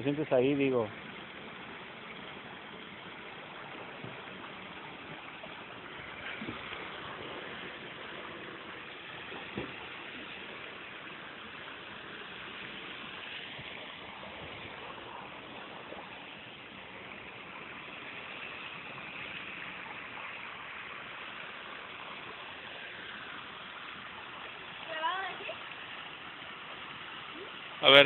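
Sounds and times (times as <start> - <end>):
rush of moving water: 0.0 - 28.0.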